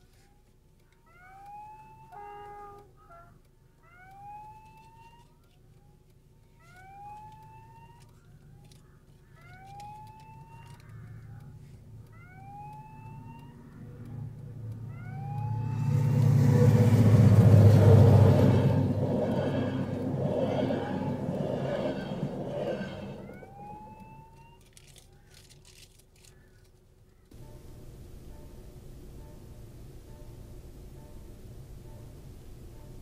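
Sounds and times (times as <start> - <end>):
level crossing warning whoop: 1.1 - 3.2, 3.8 - 5.3, 12.1 - 14.0, 14.7 - 24.7
train rumbling past: 13.7 - 24.3, 27.4 - 33.0.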